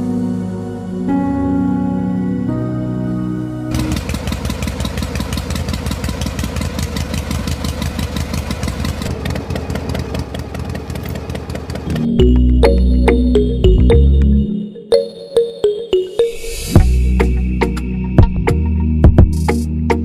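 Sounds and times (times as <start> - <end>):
diesel engine idling: 3.7 - 13.8
electronic music: 11.9 - 20.0.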